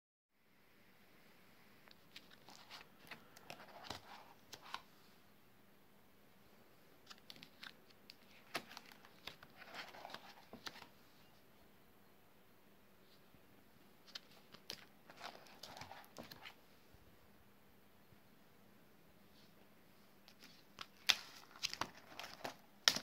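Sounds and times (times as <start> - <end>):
plastic sleeve pages turning: 1.9 - 4.9, 7.0 - 10.9, 14.0 - 16.6, 20.3 - 23.0.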